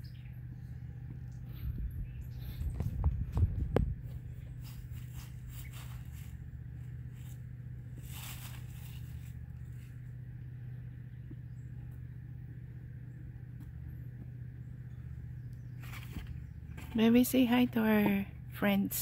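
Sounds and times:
low mechanical hum: 0.0s - 19.0s
scraping rustle: 4.6s - 10.1s, 15.8s - 17.0s.

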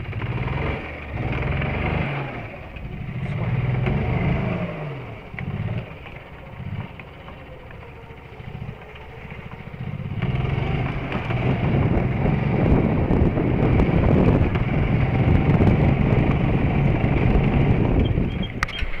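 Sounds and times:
golf cart driving: 0.0s - 19.0s.

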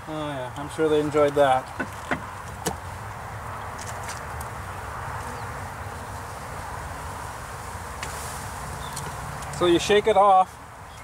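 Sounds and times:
bees buzzing: 4.5s - 9.8s.

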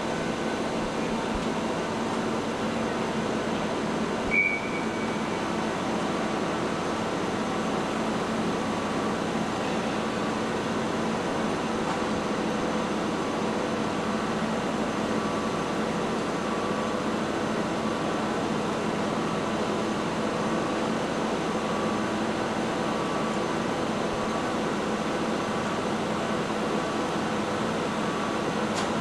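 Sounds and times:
steady mechanical drone: 0.0s - 29.0s.

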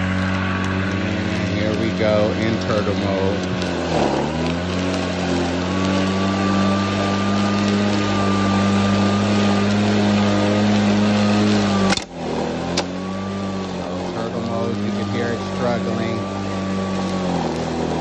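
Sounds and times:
electric lawn mower humming: 0.0s - 18.0s.

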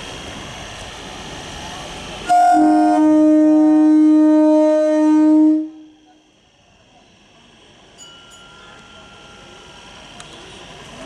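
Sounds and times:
steady rumbling noise: 0.0s - 7.9s
electric train horn blast: 2.2s - 6.2s.

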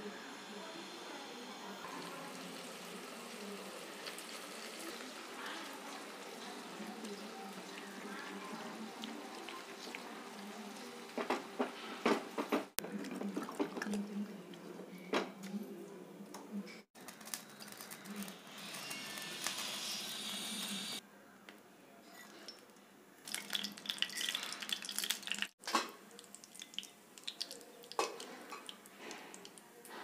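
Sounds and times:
oil sizzling in a pan: 0.4s - 11.4s
spices crackling and popping: 1.8s - 11.7s, 16.9s - 21.0s, 22.1s - 30.0s.

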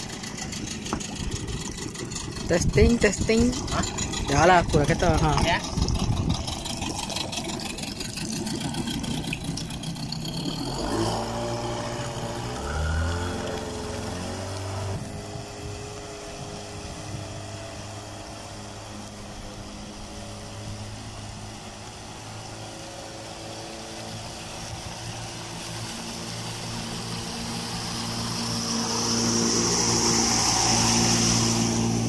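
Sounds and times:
outboard motor running: 0.0s - 32.0s
hiss of water or wind: 10.6s - 32.0s.

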